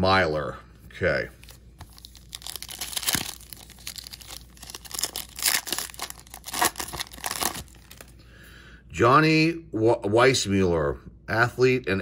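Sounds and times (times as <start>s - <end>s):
wrapper and cards crinkling: 1.4s - 8.2s.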